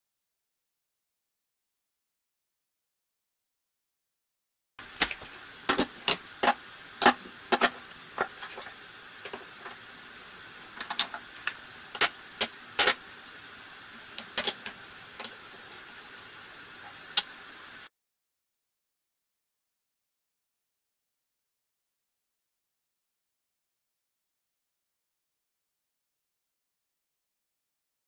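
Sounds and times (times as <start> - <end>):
faint hiss: 4.8 - 17.9.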